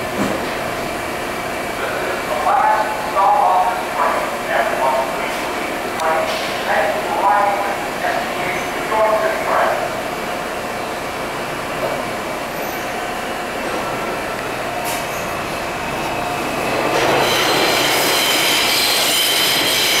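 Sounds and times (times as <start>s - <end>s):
subway train rumbling: 0.0s - 20.0s
metallic wheel squeal: 16.9s - 20.0s.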